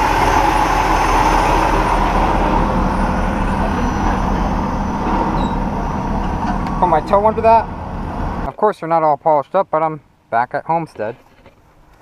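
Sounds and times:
diesel truck engine idling: 0.0s - 8.5s.

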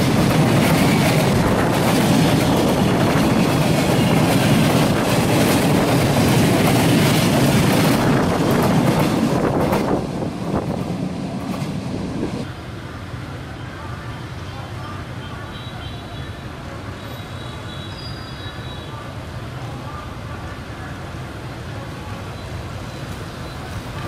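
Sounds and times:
freight train wheels clattering: 0.0s - 12.5s.

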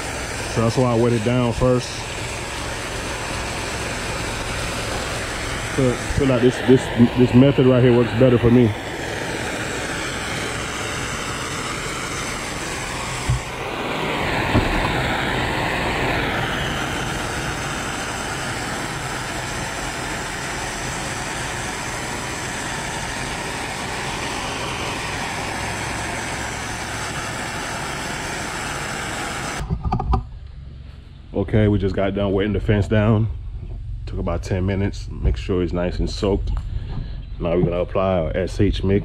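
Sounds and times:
pressure washer spraying wood: 0.0s - 29.7s.

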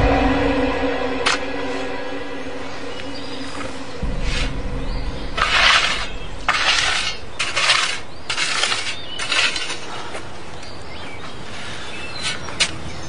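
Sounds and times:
shovel scraping earth: 5.4s - 10.2s.

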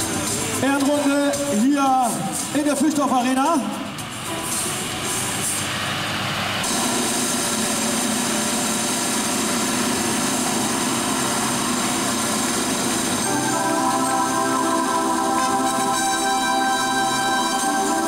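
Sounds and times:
tractor engine running: 3.8s - 18.0s.

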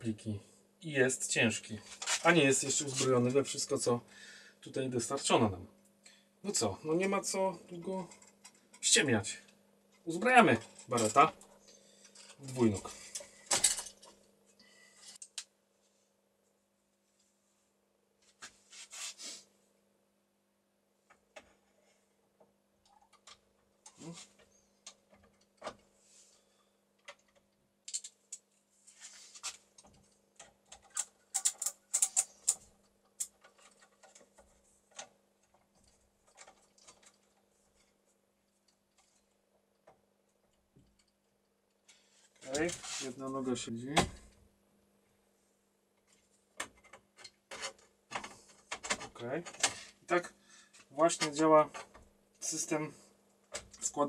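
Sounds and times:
metal bipod clicking and rattling: 30.8s - 32.6s.

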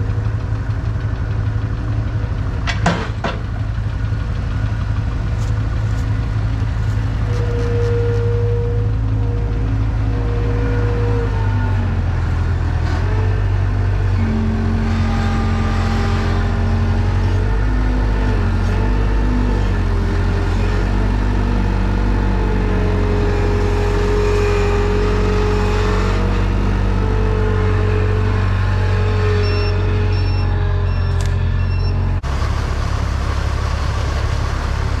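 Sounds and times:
loader engine running: 0.0s - 35.0s
tractor engine running: 0.0s - 35.0s
backup alarm beeping: 29.4s - 32.1s.

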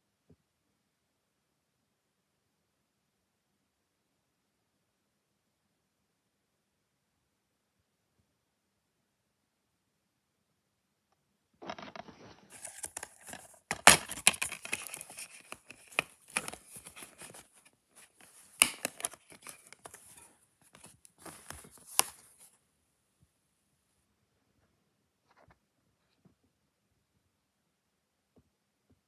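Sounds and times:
plastic case rustling and scraping: 11.6s - 22.5s.

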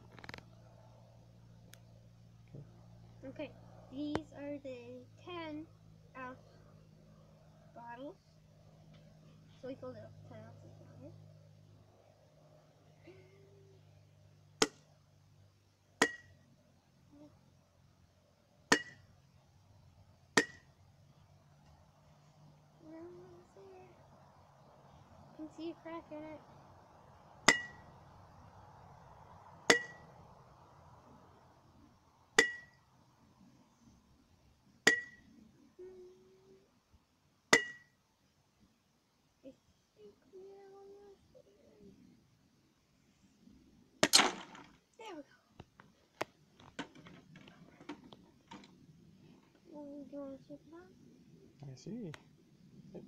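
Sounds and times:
mallet striking glass bottle: 16.0s - 16.3s, 18.7s - 19.0s, 27.5s - 27.8s, 29.7s - 30.0s, 32.4s - 32.7s, 34.9s - 35.2s, 37.6s - 37.9s
glassy ring: 27.5s - 27.9s, 29.7s - 30.1s, 32.4s - 32.8s, 34.9s - 35.3s, 37.6s - 38.0s.

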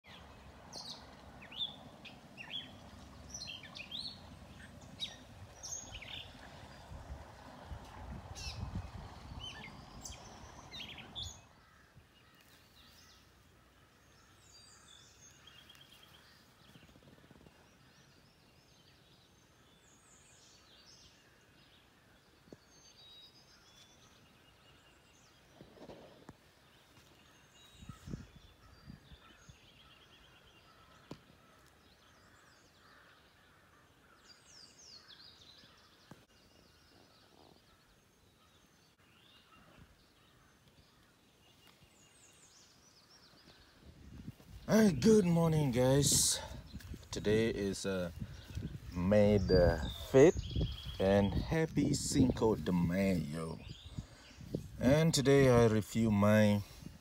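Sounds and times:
wild birds chirping: 0.0s - 57.0s
wind rumbling on microphone: 2.6s - 11.6s, 27.7s - 29.8s, 43.5s - 45.2s, 45.8s - 55.8s, 56.6s - 57.0s.

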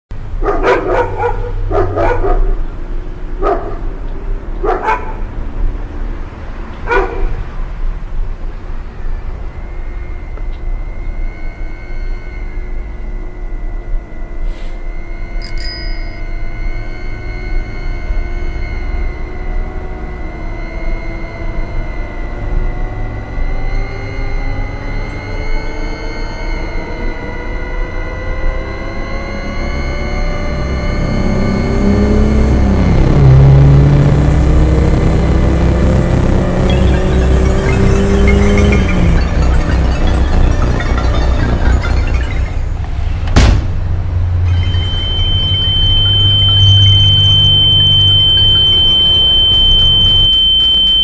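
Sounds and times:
held droning tones: 0.2s - 51.0s
dog barking: 0.4s - 2.6s, 3.4s - 3.9s, 4.6s - 5.2s, 6.9s - 7.4s.

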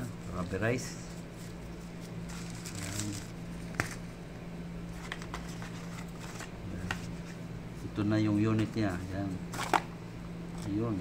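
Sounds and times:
steady low hum: 0.0s - 11.0s
paper and phone case rustling: 4.9s - 7.3s.

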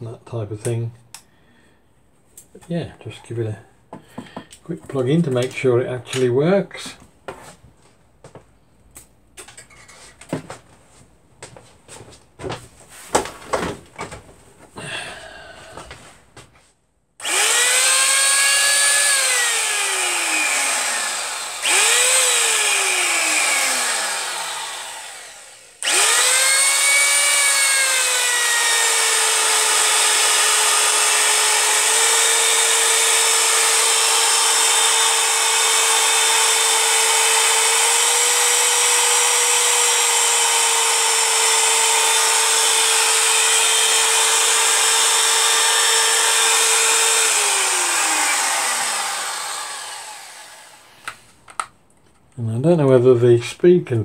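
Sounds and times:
router motor whining: 17.2s - 51.7s.

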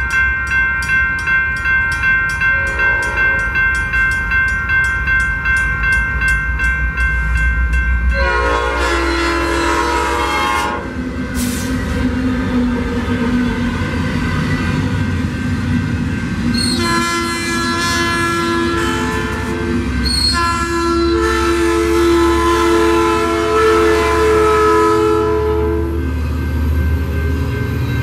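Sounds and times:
crossing bells dinging: 0.0s - 11.0s, 13.4s - 28.0s
rumble of passing locomotives: 0.0s - 28.0s
train horn blast: 2.6s - 3.5s, 8.1s - 11.0s, 16.6s - 26.0s.

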